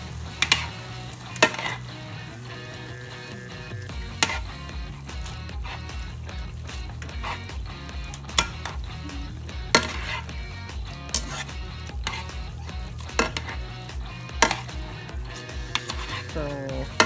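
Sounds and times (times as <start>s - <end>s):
food sizzling in frying pan: 0.0s - 17.0s
tongs clicking on pan: 0.4s - 1.9s, 4.1s - 5.4s, 7.0s - 8.9s, 9.7s - 10.3s, 10.9s - 12.4s, 13.0s - 13.6s, 14.3s - 17.0s.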